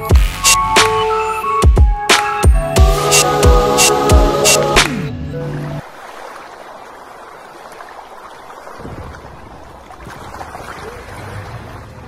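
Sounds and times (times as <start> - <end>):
wind: 5.2 - 12.0
water lapping: 5.4 - 12.0.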